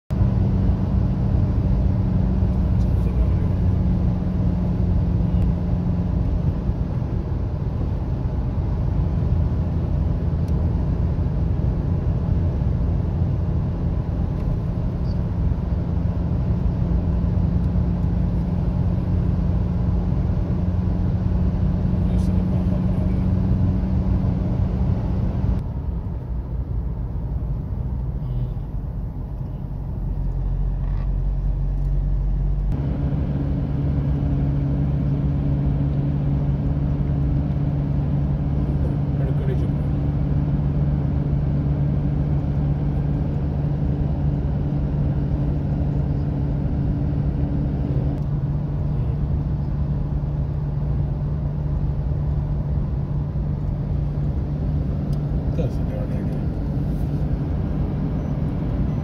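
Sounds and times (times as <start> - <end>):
car engine drone: 0.1 - 59.0
tyre and road rumble: 0.1 - 59.0.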